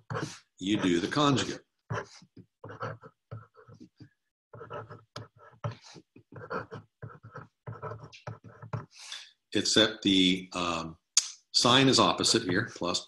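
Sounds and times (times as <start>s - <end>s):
pen scratching on paper: 0.0s - 9.0s, 11.9s - 13.0s.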